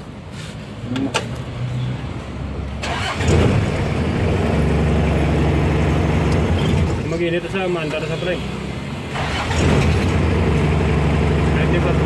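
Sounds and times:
diesel engine cranking and idling: 0:02.6 - 0:12.0.

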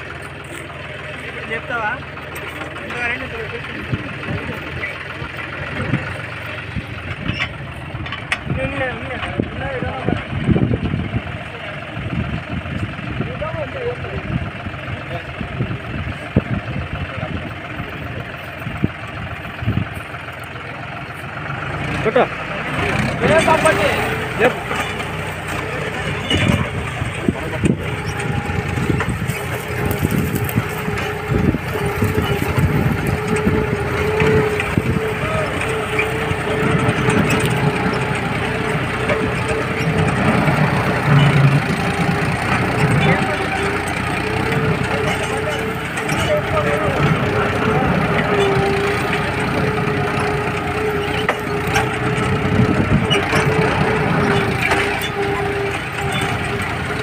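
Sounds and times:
tractor diesel engine running: 0:00.0 - 0:57.0
soil crunching and knocking: 0:25.6 - 0:38.2.

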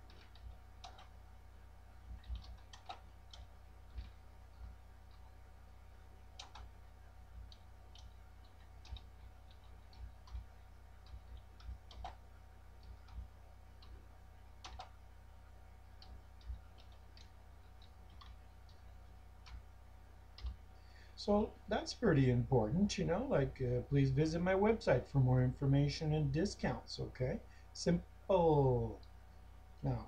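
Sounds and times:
steady low hum: 0:00.0 - 0:30.0
keyboard keys clicking: 0:00.1 - 0:01.1, 0:02.2 - 0:04.2, 0:07.5 - 0:12.2, 0:14.6 - 0:15.0.

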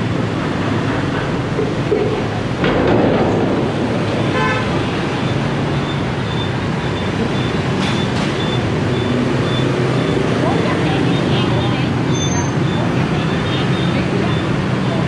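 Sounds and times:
road traffic noise: 0:00.0 - 0:15.0
vehicle horn toot: 0:04.3 - 0:04.8.

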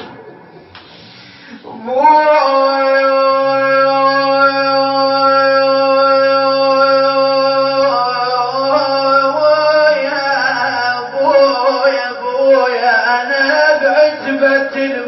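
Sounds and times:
man singing wordless elegy: 0:01.7 - 0:15.0.

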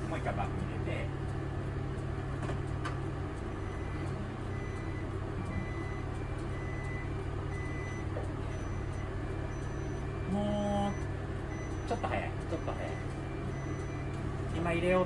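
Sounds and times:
bus engine idling: 0:00.0 - 0:15.0
reverse warning beeps: 0:03.4 - 0:15.0.

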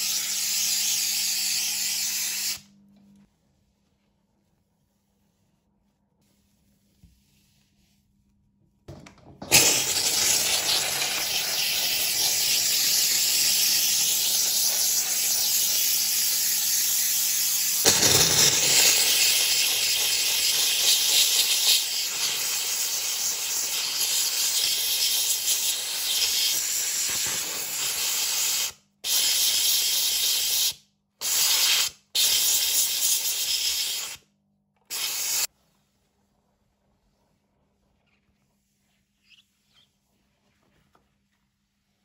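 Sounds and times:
steam cleaner hissing: 0:00.0 - 0:02.6, 0:09.5 - 0:34.2, 0:34.9 - 0:35.5.

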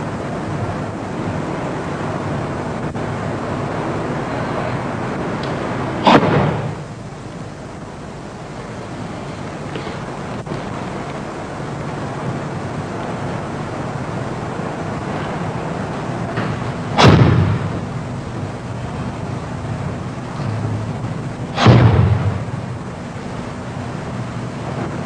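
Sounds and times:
tape hiss and hum: 0:00.0 - 0:25.0.

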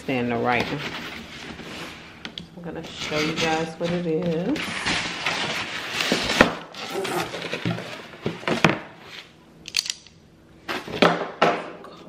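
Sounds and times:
cardboard flaps scraping: 0:02.9 - 0:09.3.

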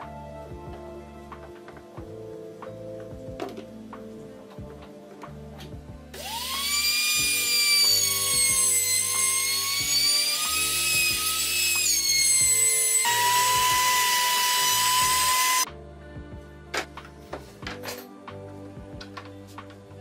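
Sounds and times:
trim router high-pitched whine: 0:06.2 - 0:15.7.

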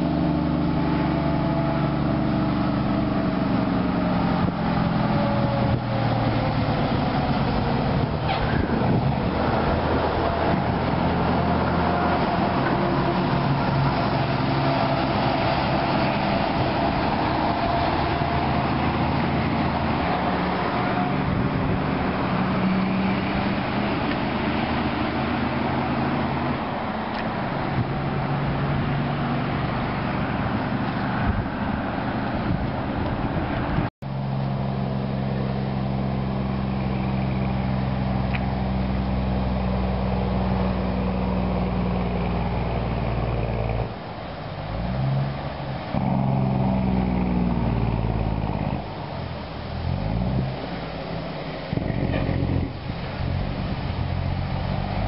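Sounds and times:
road noise: 0:00.0 - 0:55.0
truck diesel engines passing: 0:00.0 - 0:55.0.

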